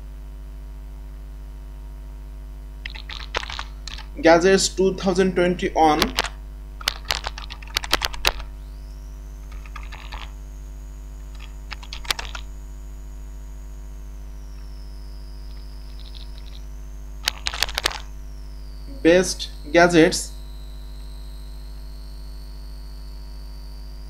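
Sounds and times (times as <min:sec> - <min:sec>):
steady electrical hum: 0:00.0 - 0:24.0
computer keyboard keys clicking: 0:02.9 - 0:04.1, 0:06.0 - 0:08.5, 0:09.5 - 0:10.3, 0:11.4 - 0:12.4, 0:15.9 - 0:16.6, 0:17.2 - 0:18.0.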